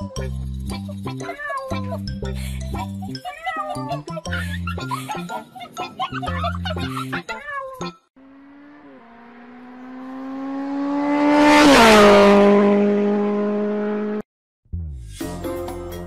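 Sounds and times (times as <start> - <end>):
race car passing by: 8.2 - 14.2.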